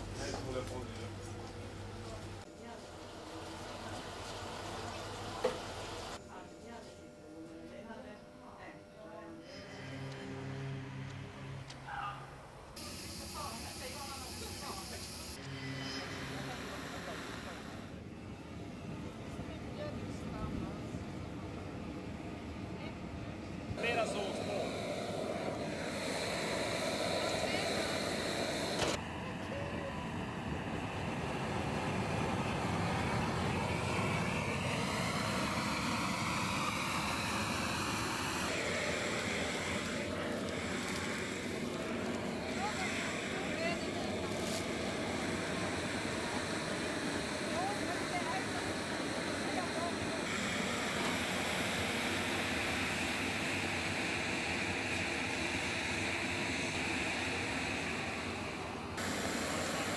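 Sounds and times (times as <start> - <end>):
gas burner rushing: 12.8 - 18.0, 23.7 - 59.9.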